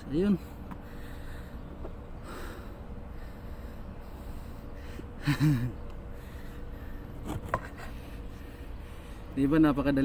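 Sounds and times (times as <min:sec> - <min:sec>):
low background hum: 0:00.0 - 0:10.0.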